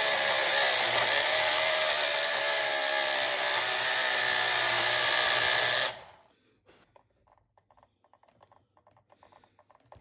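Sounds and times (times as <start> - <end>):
slot car motor whirring: 0.0 - 6.2.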